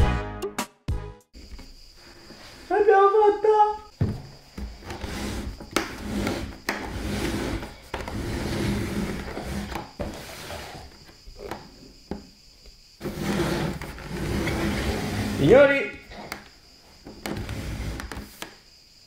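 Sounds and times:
rubbing and rustling: 4.0s - 11.9s, 13.0s - 18.6s.

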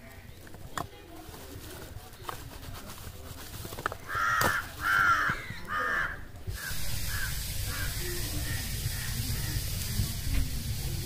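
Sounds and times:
bird calling loudly: 4.1s - 10.0s.

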